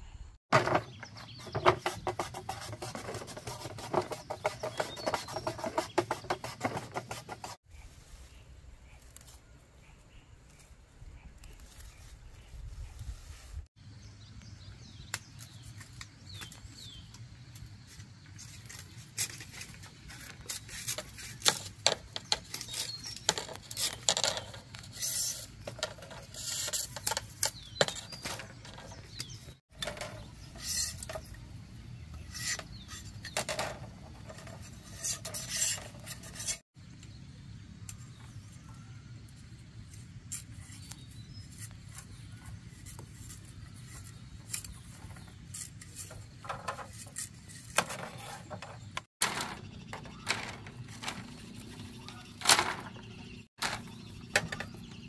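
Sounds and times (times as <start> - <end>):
knife scraping bamboo: 1.3 - 7.6, 18.3 - 31.5, 32.1 - 36.7, 39.8 - 49.5.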